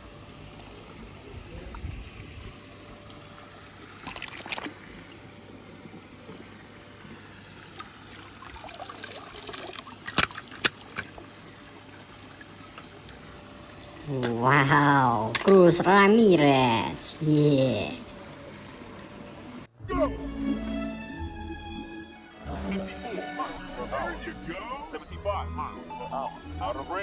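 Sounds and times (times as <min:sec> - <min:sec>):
trickling water: 0:00.0 - 0:19.7.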